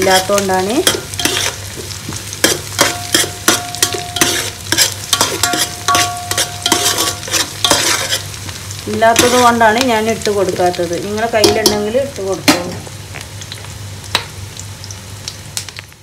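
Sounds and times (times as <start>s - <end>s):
spoon scraping and knocking pot: 0.0s - 8.4s, 9.2s - 9.5s
oil sizzling in a pot: 0.0s - 16.0s.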